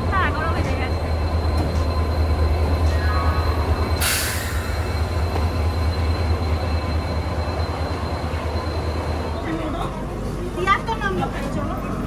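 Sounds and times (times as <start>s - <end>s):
diesel locomotive engine drone: 0.0s - 12.0s
hiss of released air: 4.0s - 4.8s.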